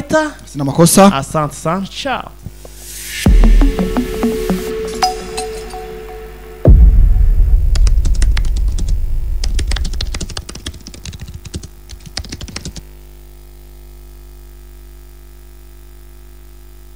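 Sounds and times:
deep bass boom: 2.9s - 10.5s.

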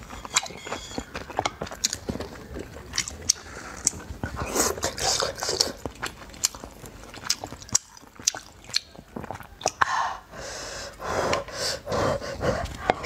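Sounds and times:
chewing wet food: 0.0s - 10.0s
wet mouth clicks: 2.9s - 9.9s
breathy sounds: 9.8s - 13.0s.

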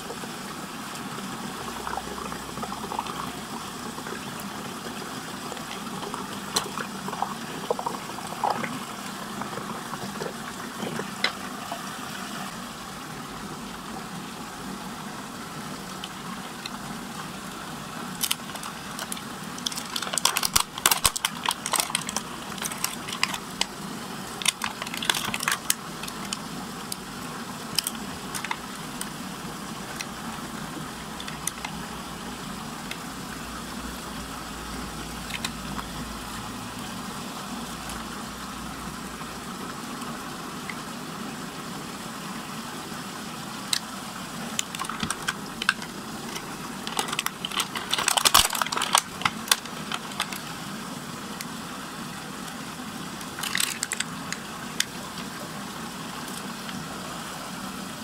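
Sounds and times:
whirlpool water rushing hum: 0.0s - 58.0s
plastic packaging crinkling: 18.1s - 27.0s, 27.6s - 29.2s, 31.1s - 31.8s, 43.7s - 50.6s, 53.2s - 55.2s.

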